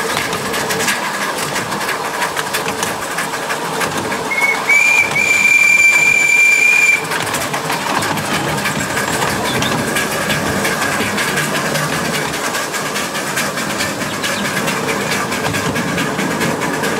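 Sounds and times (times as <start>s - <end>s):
miniature steam locomotive clatter: 0.0s - 16.9s
steam whistle blast: 4.3s - 7.1s.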